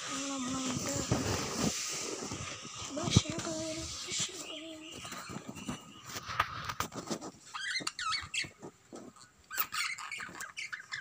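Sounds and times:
pet birds chirping: 2.5 - 11.0.

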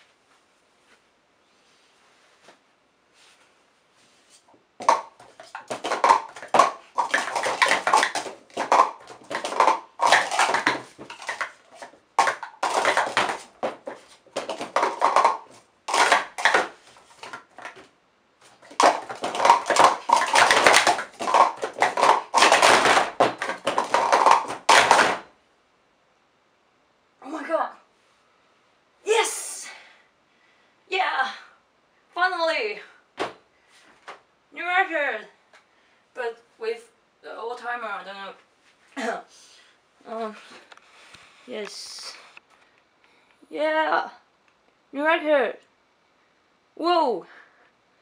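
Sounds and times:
plastic cups clattering: 4.8 - 25.3.

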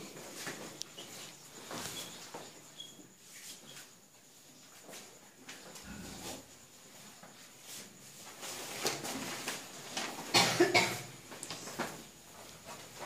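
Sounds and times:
person coughing: 10.3 - 11.1.

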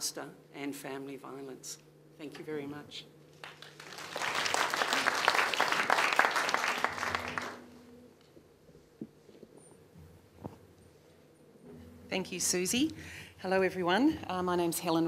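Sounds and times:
audience applauding: 3.4 - 7.7.

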